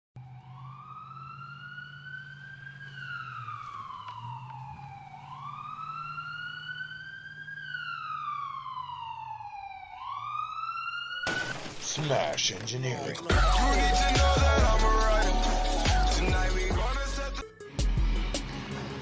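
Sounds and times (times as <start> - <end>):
siren wailing: 0.2 - 11.7.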